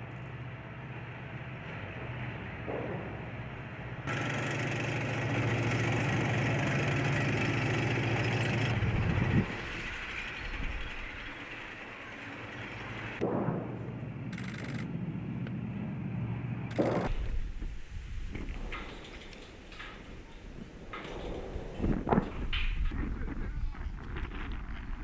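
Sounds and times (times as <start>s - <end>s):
engine-like drone: 0.0s - 17.4s.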